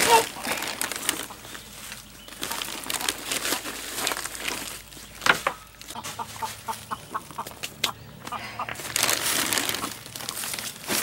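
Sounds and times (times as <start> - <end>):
wood shavings rustling: 0.0 - 6.9, 8.8 - 11.0
chicken clucking: 5.9 - 8.8.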